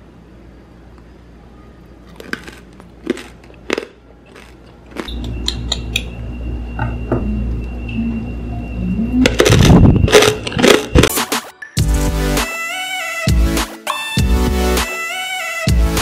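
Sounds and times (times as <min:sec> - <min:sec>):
crispy pork skin crunching: 0:02.1 - 0:05.2
background music: 0:11.0 - 0:16.0.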